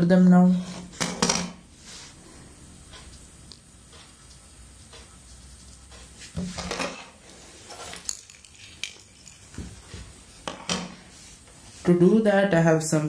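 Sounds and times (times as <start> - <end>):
small parts clattering on wood: 7.7 - 9.8.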